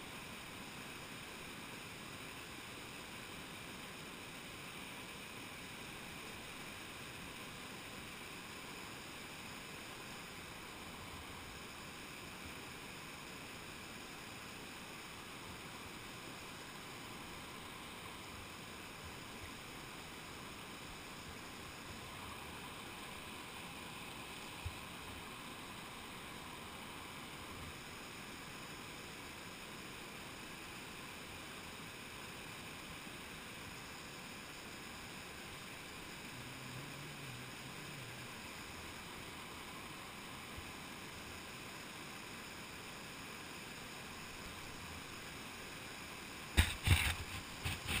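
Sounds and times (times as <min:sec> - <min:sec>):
river rapids rushing: 0:34.8 - 0:42.3.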